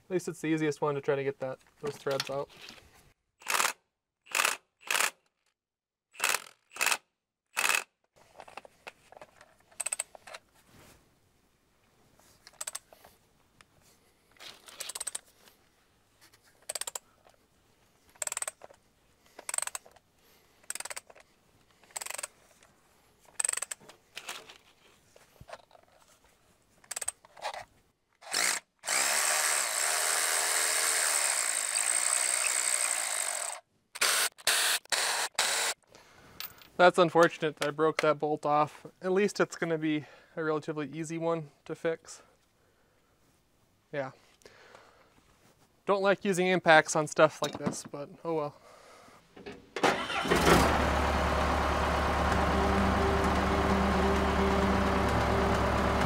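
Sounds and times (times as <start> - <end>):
impact wrench bursts: 3.4 - 5.2, 6.2 - 7.0, 7.6 - 7.9, 49.8 - 50.7.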